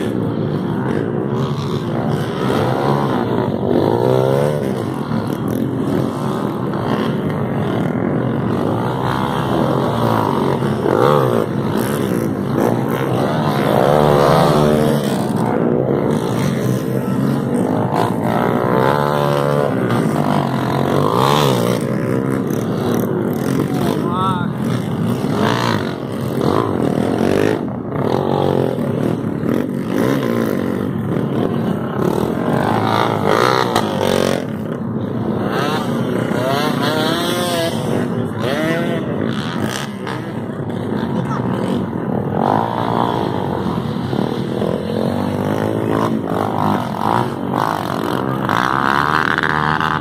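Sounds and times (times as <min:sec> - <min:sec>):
dirt bike engines revving: 0:00.0 - 0:50.0.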